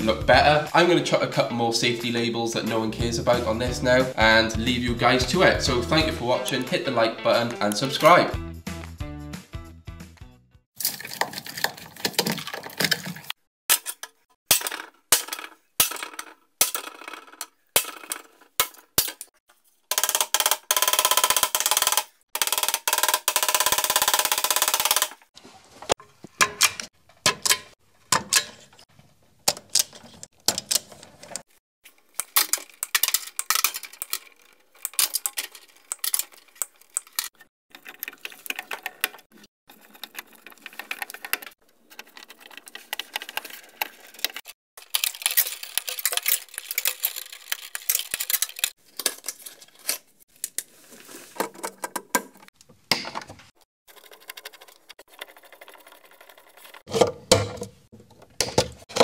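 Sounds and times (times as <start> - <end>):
hand tools and metal parts clinking: 25.9 - 52.6.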